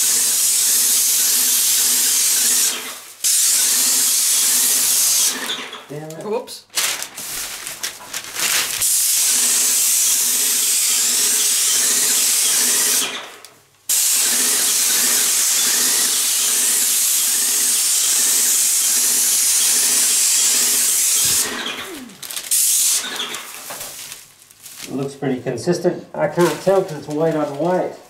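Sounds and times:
paint sprayer hissing: 0:00.0 - 0:05.4, 0:08.8 - 0:13.1, 0:13.9 - 0:23.7.

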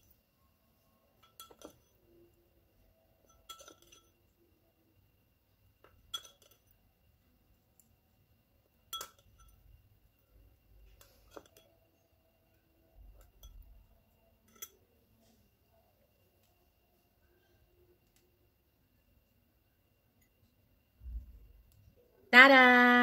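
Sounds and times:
teaspoon clinking on glass bowl: 0:01.2 - 0:02.0, 0:03.2 - 0:04.2, 0:06.0 - 0:06.7, 0:08.9 - 0:09.6, 0:14.4 - 0:14.8.

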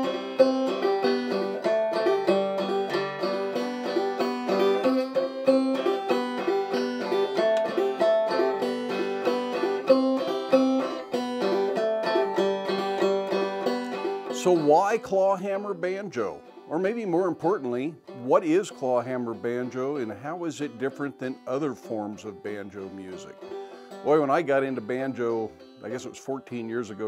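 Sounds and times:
banjo playing old-time tune: 0:00.0 - 0:27.0.

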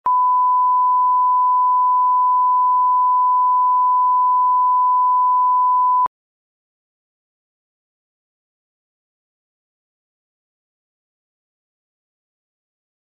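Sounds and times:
pure test tone beep: 0:00.1 - 0:06.1.

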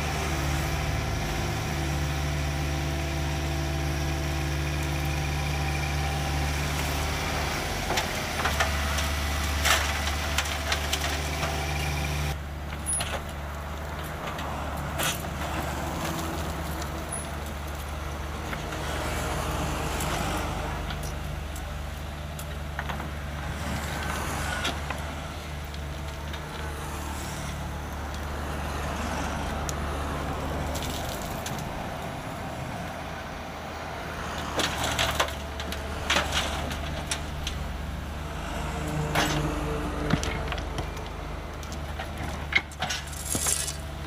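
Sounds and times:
excavator diesel engine running: 0:00.0 - 0:44.0
rocks knocking and rattling: 0:30.7 - 0:31.8, 0:39.1 - 0:44.0
soil and stones scraping in bucket: 0:42.8 - 0:43.9.

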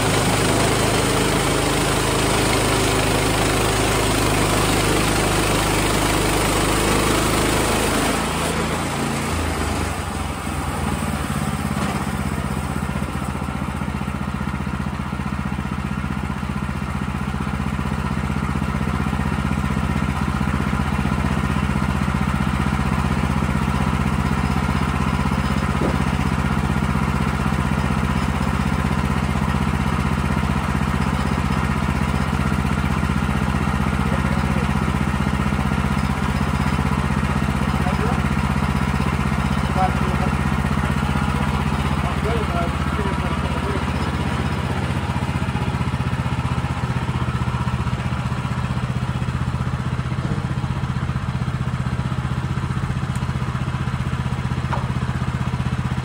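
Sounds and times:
blade sawing through log: 0:00.0 - 0:13.8
sawmill engine running: 0:00.0 - 0:56.0.

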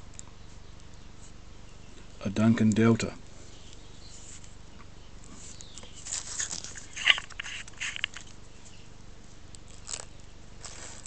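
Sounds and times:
small clicks: 0:05.6 - 0:08.4
bubble wrap crinkling: 0:05.8 - 0:08.4, 0:09.5 - 0:11.0.

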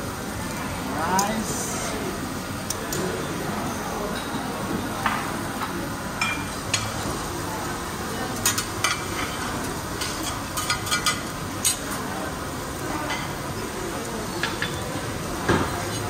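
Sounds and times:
food sizzling on hotplate: 0:00.0 - 0:16.0
utensils clinking on griddle: 0:08.3 - 0:12.1, 0:14.3 - 0:14.9.

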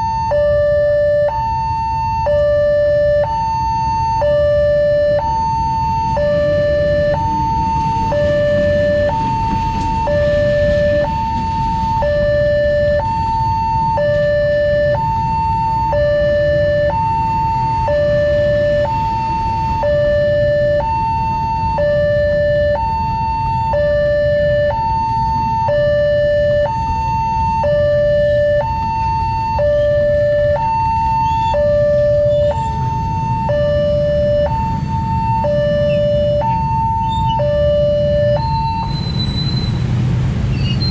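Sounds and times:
level-crossing two-tone alarm: 0:00.0 - 0:39.8
passing train: 0:06.0 - 0:13.0, 0:37.5 - 0:40.9.

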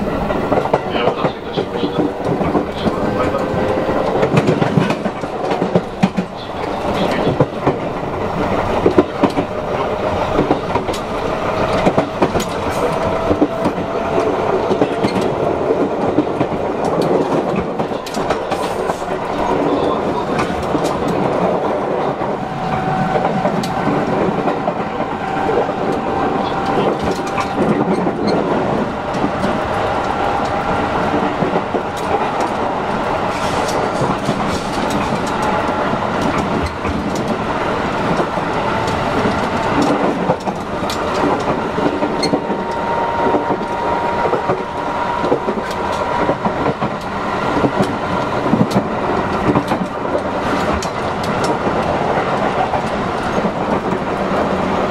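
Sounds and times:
rail-joint clicks: 0:00.0 - 0:54.9
train wheels rumbling on rail: 0:00.0 - 0:54.9.

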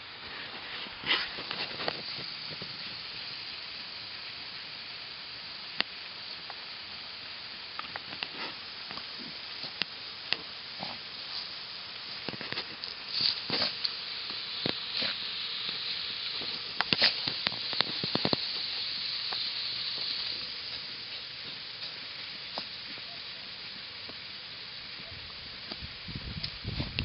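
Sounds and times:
dog digging in soil: 0:12.4 - 0:13.9.

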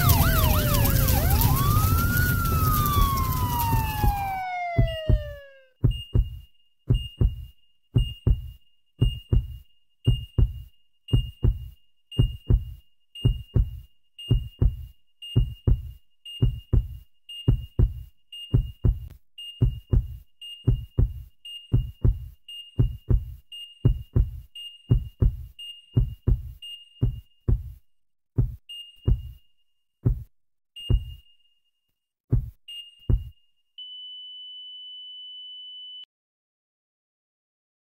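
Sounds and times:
heartbeat double thump: 0:02.5 - 0:27.8, 0:28.4 - 0:29.4, 0:30.0 - 0:31.2, 0:32.3 - 0:33.4
heart monitor beep: 0:03.1 - 0:31.6, 0:32.3 - 0:36.1.

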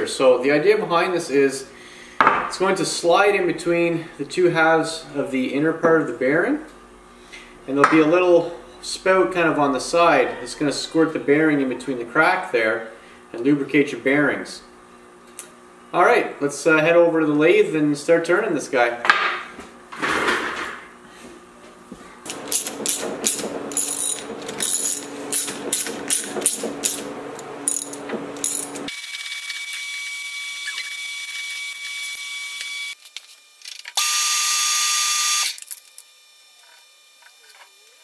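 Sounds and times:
lathe spindle whining: 0:22.3 - 0:33.0.

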